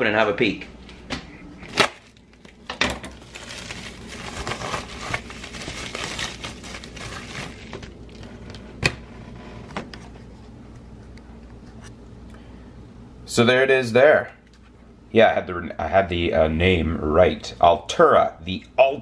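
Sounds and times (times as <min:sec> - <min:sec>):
paper rustling and tearing: 0:01.6 - 0:08.4.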